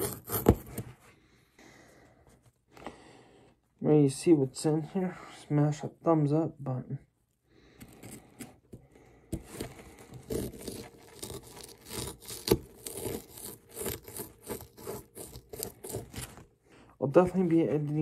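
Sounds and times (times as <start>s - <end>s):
plastic pick scraping plaster: 0.0s - 1.0s, 7.7s - 16.5s.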